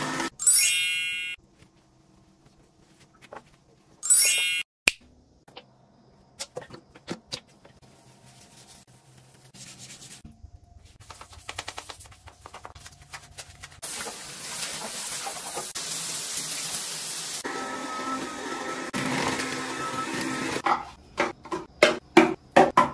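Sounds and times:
shower hose water spraying: 0:13.6 - 0:17.5.

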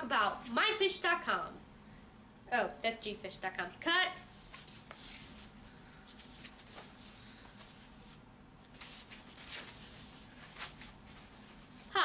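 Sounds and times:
low room hiss: 0:00.0 - 0:12.0
poster board rustling: 0:04.2 - 0:12.0.

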